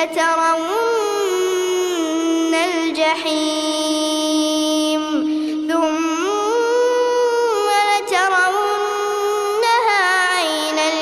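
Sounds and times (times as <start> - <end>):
boy chanting melodically: 0.0 - 11.0.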